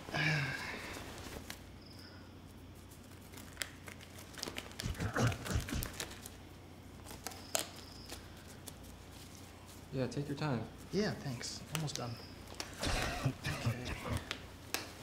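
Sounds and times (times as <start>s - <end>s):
rubber glove crinkling: 0.8s - 1.8s, 2.5s - 10.0s.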